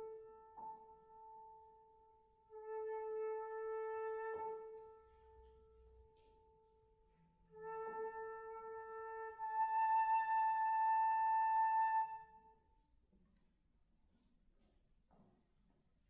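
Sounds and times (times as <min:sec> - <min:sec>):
flute sustained notes: 0:00.0 - 0:01.8, 0:02.5 - 0:05.7, 0:07.5 - 0:12.5
soft piano accompaniment: 0:00.0 - 0:12.8.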